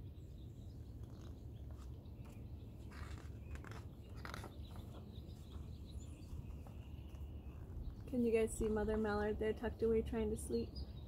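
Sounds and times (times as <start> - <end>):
paper pages rustling: 1.0 - 7.2.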